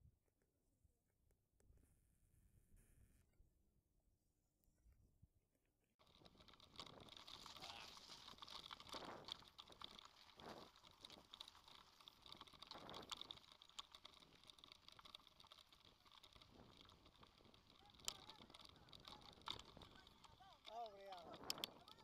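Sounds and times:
bike rolling over gravel: 6.0 - 22.0.

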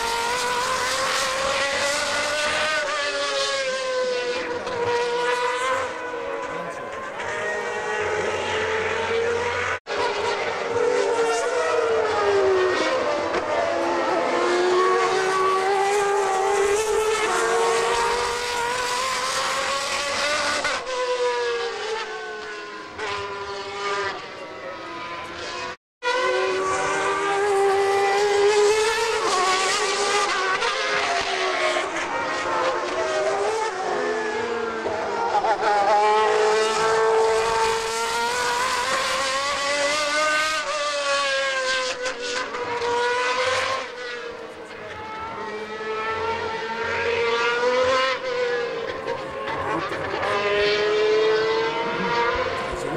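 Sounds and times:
racing car engines at high revs: 0.0 - 52.9.

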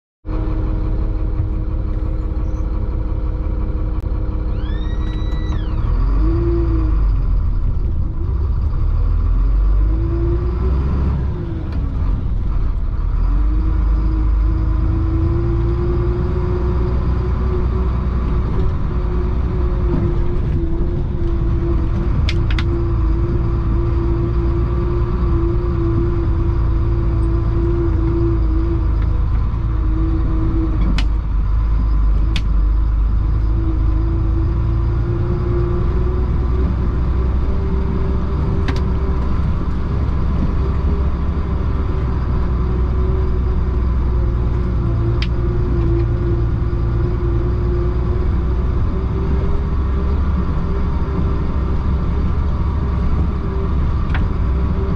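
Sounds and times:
diesel truck engine rumbling: 0.2 - 54.9.

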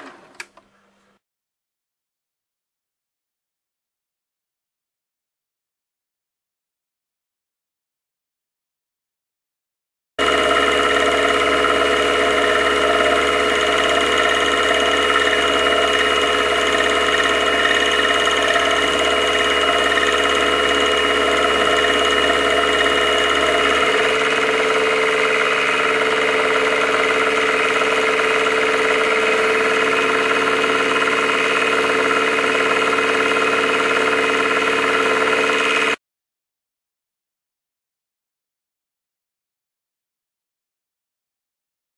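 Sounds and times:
milling machine droning: 10.2 - 36.0.

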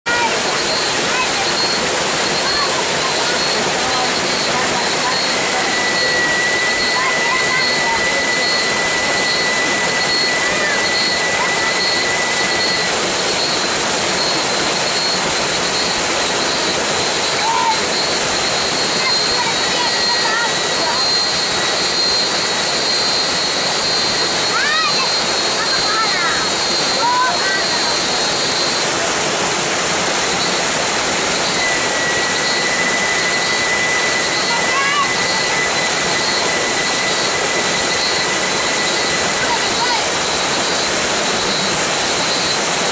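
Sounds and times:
waterfall rushing: 0.1 - 42.9.

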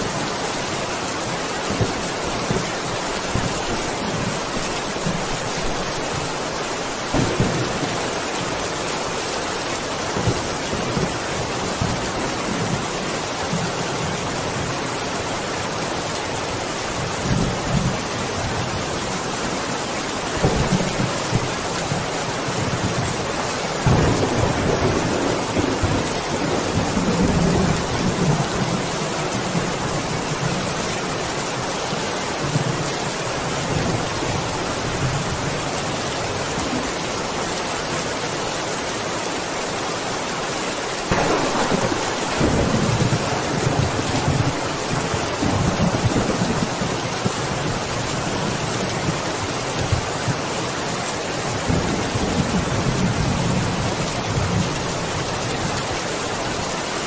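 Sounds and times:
rain falling: 0.0 - 57.0
thunder rumbling: 1.2 - 14.7, 20.3 - 30.8, 41.1 - 50.4.

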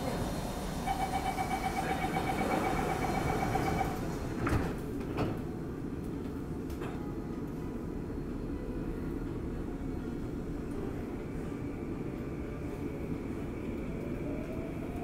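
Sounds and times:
sliding doors shutting: 0.0 - 5.6
low hum of standing train: 0.0 - 15.0
train door warning tone: 0.8 - 4.2.

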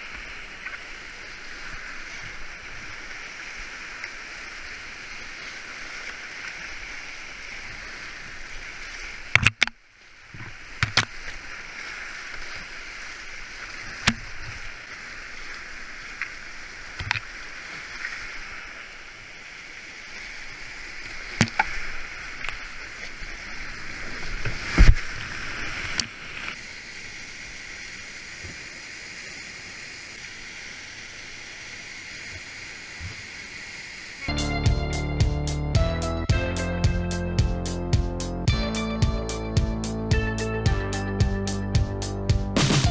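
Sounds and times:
rushing creek water: 0.0 - 40.0
music: 34.3 - 42.9.

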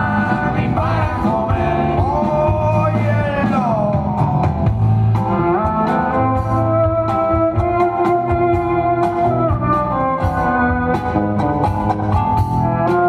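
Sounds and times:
man singing long sliding notes: 0.0 - 4.4
live rock band playing: 0.0 - 13.0.

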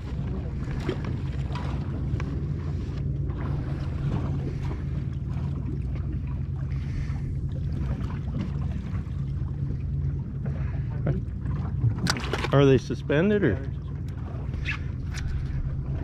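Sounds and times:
boat engine humming: 0.0 - 16.0
water noise: 0.0 - 16.0
wind: 0.0 - 16.0.

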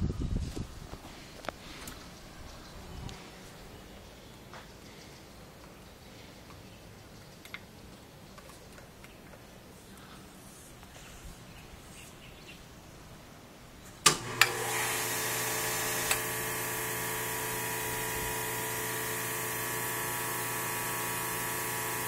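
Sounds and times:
misting system switch clicks: 14.0 - 14.6
pump humming: 14.0 - 22.0.

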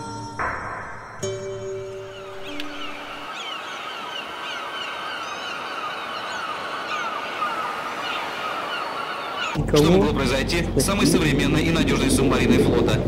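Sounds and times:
flock of birds calling: 2.0 - 9.6.

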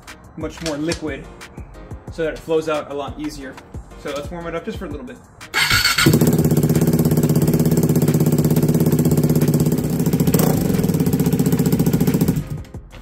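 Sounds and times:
motorcycle engine idling: 5.6 - 12.5.

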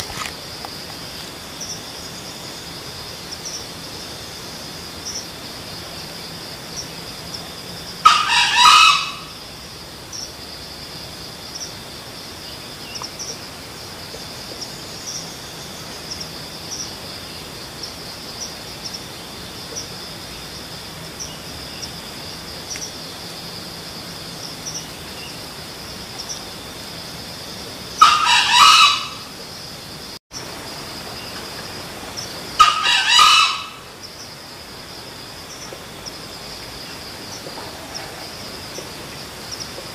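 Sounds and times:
high insect buzz: 0.0 - 7.6
junglefowl crowing: 8.0 - 9.4, 28.0 - 29.3, 32.6 - 33.9.

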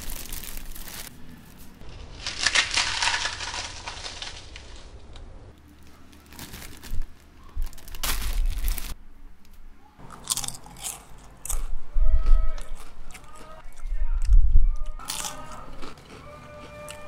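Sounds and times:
potato chips crunching: 0.0 - 1.6, 2.2 - 4.6, 6.1 - 9.0, 10.0 - 11.8, 12.6 - 13.9, 15.0 - 17.0.

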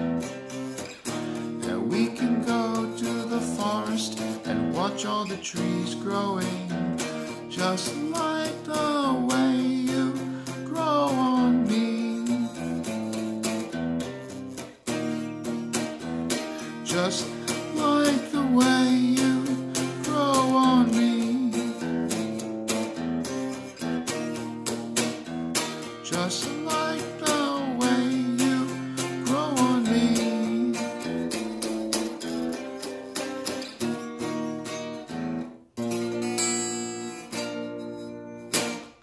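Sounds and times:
electric guitar picked notes: 0.0 - 39.0.

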